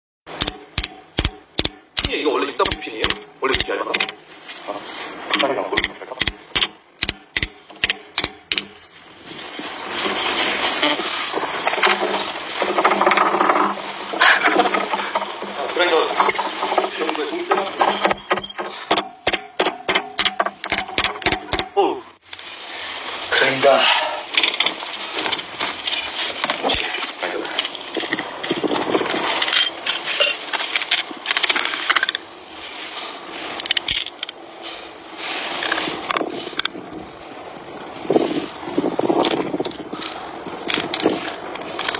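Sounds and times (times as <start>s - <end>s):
hammer clanking on steel pin: 0.3s - 4.2s, 5.4s - 8.8s, 18.3s - 21.8s
sharp clicks of disc changing: 0.3s - 4.2s, 5.3s - 8.8s
loud continuous noise: 0.3s - 18.2s
metal discs scraping in dirt: 0.3s - 18.9s, 23.7s - 32.2s.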